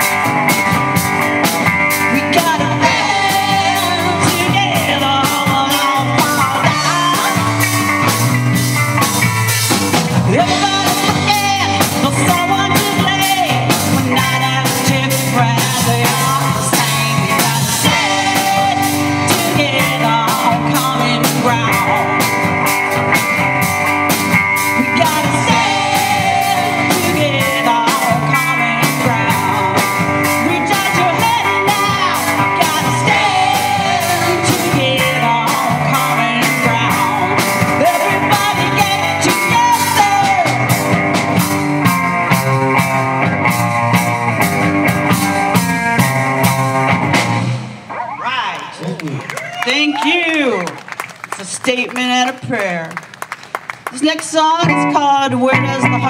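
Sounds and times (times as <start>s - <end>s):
drum kit beat: 0.0s - 47.9s
electric bass: 0.0s - 49.8s, 54.0s - 56.0s
electric guitar: 0.0s - 56.0s
woman singing lead: 1.4s - 8.4s, 10.1s - 23.4s, 24.6s - 41.5s, 54.0s - 56.0s.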